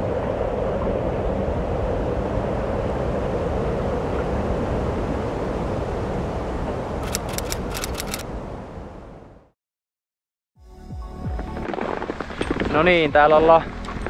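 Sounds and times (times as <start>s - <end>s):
wind-like rushing noise: 0.0s - 9.4s
sharp clicks: 7.0s - 8.2s.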